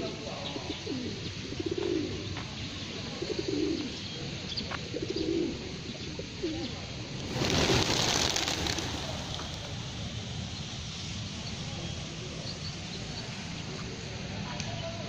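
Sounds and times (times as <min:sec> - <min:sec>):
pigeons cooing: 0:00.0 - 0:10.3
loud rushing noise: 0:07.2 - 0:11.8.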